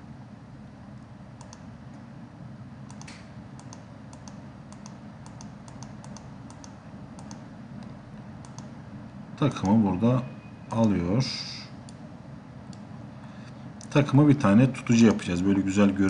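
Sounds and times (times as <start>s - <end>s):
steady low hum: 0.0s - 16.0s
computer mouse clicks: 1.4s - 1.7s, 2.9s - 8.7s.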